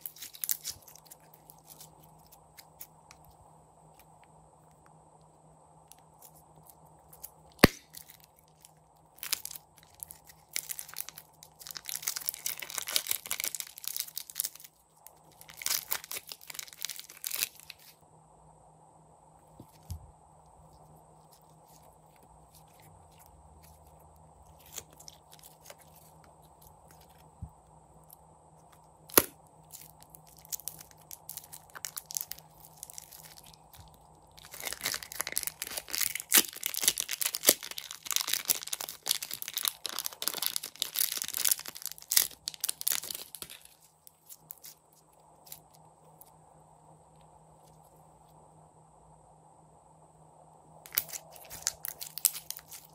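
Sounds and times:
plastic bag crinkling: 0.0 - 2.9, 7.1 - 18.0, 21.2 - 27.3, 29.1 - 44.8, 50.9 - 52.9
slime crackling and popping: 0.0 - 2.9, 7.1 - 17.9, 29.1 - 44.8, 50.9 - 52.9.

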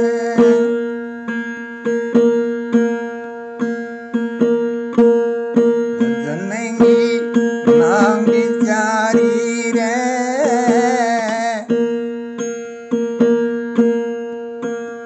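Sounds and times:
wavering melody line: 6.0 - 11.8.

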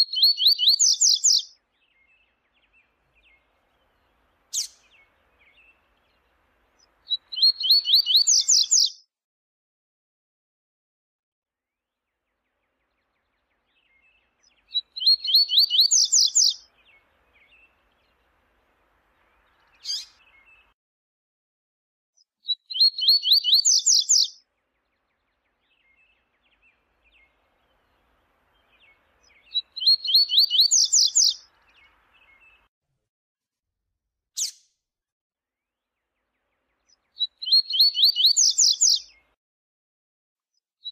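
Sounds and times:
songbird singing high notes: 0.0 - 3.4, 7.1 - 9.0, 13.8 - 18.0, 19.4 - 20.7, 22.5 - 24.4, 28.5 - 32.6, 37.2 - 39.2.

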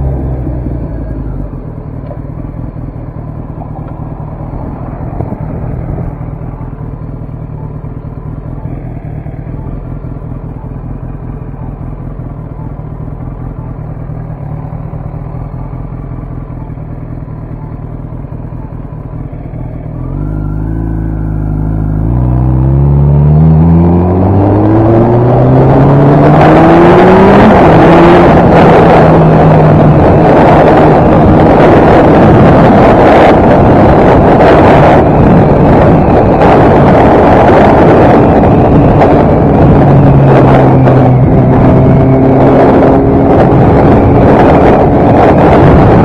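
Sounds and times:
motorcycle engine revving: 0.0 - 46.0
wind noise on microphone: 3.6 - 7.0, 20.1 - 46.0.

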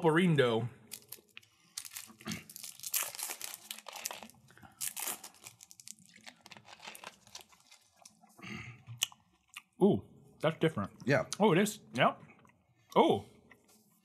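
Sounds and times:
plastic wrapper crinkling and tearing: 0.9 - 8.2.

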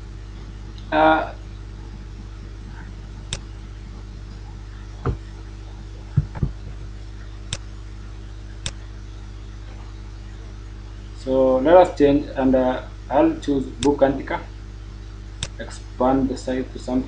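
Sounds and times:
low electrical hum: 0.0 - 17.0
dull low knocks: 5.0 - 5.3, 6.1 - 7.0.

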